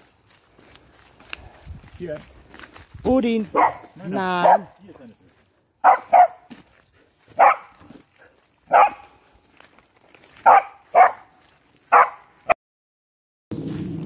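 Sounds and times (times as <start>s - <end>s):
dog barking: 3.5s - 4.8s, 5.8s - 6.5s, 7.3s - 7.9s, 8.7s - 9.2s, 10.4s - 11.3s, 11.9s - 12.6s.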